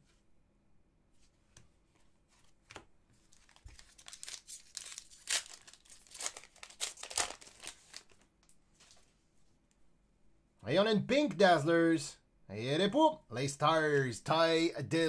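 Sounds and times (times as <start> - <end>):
wrapper tearing and crinkling: 3.3 - 9.0.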